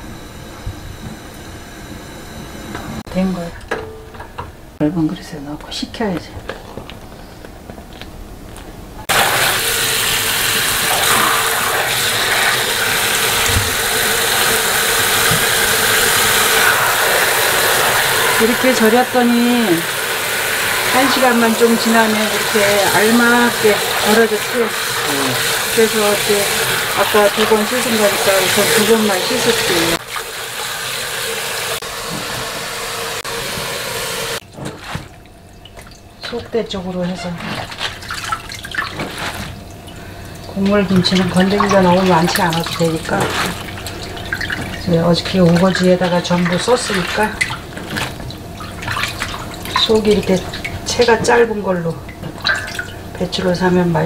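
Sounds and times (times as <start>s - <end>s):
tap water running into metal basin: 9.1s - 34.4s, 35.2s - 53.5s
hands swishing leaves in water: 37.0s - 39.6s, 41.2s - 44.8s.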